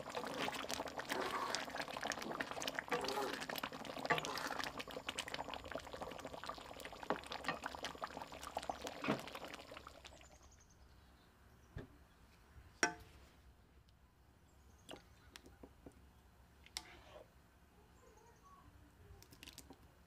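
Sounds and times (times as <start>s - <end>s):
curry bubbling and popping: 0.0s - 10.5s, 19.2s - 19.9s.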